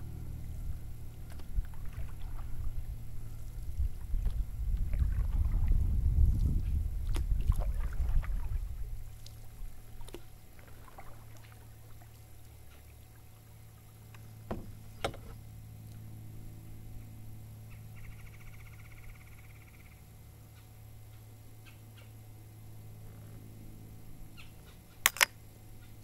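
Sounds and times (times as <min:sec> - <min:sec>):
low rumble: 0:00.0 - 0:11.4
canoe paddling on calm water: 0:00.0 - 0:24.9
steady low hum: 0:00.0 - 0:26.0.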